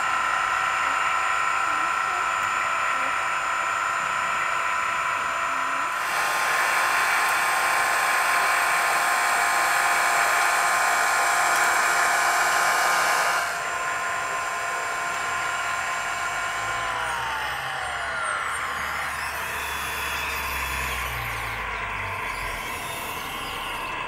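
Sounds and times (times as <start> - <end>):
electric motors whining: 0.0 - 24.0
brushes spinning over asphalt: 6.0 - 13.8.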